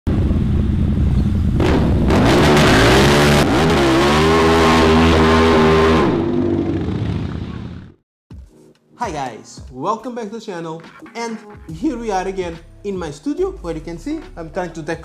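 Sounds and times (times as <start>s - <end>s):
motorcycle engine revving: 1.6s - 8.0s.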